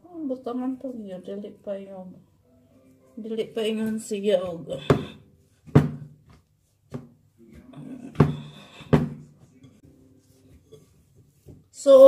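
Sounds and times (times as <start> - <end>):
hand kneading dough slaps: 3.8 - 9.2.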